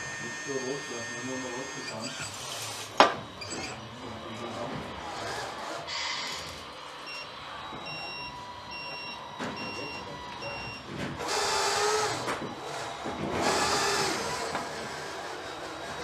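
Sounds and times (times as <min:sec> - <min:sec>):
short warning beeps: 0:07.9 - 0:10.8.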